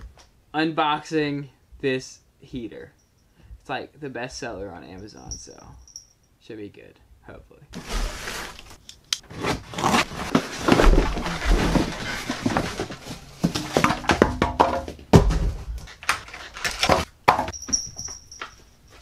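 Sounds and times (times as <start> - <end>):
cardboard box and foam handled: 7.8 - 14.2.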